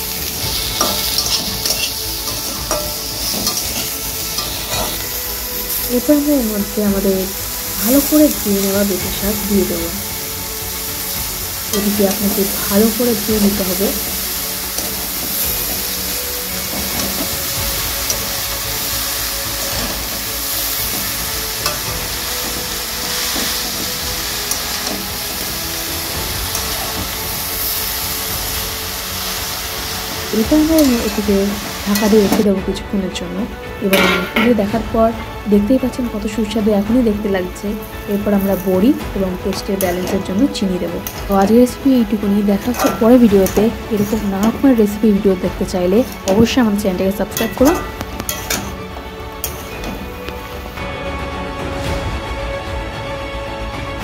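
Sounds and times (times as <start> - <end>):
vegetables sizzling in oil: 0.0 - 54.0
metal spatula scraping pan: 0.2 - 5.9, 11.7 - 25.1, 33.9 - 34.7, 39.5 - 41.4, 42.1 - 45.0, 47.3 - 50.2
metal spatula clicking on pan: 47.4 - 48.7.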